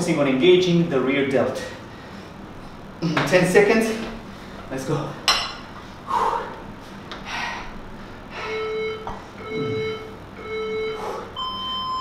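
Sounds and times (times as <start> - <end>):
interval timer beeps: 8.5 - 12.0.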